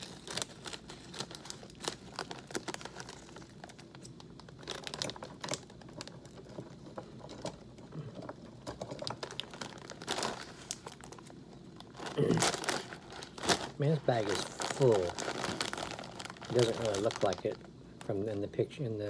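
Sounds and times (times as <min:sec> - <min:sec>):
plastic snack bag crackling: 0:00.0 - 0:18.7.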